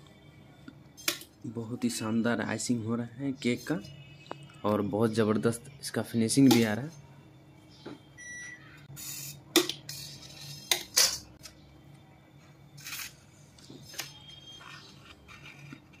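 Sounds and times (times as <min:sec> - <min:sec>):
metal knife scraping metal turntable: 0:09.9 - 0:11.3.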